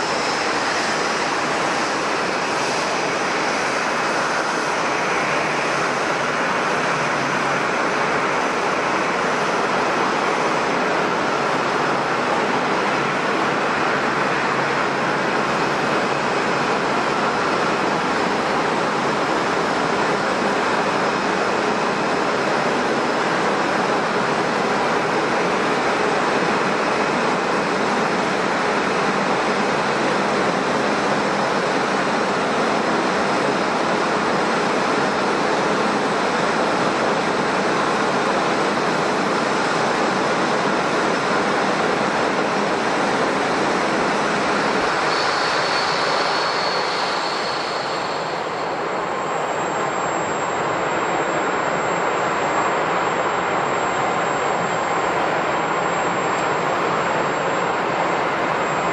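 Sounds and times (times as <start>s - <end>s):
jet engines roaring: 0.0s - 58.9s
thin high whine: 38.2s - 58.9s.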